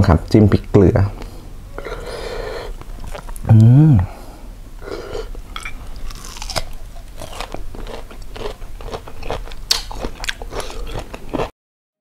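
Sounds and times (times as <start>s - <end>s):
crunchy chewing of mango: 1.8s - 3.7s, 4.8s - 11.5s.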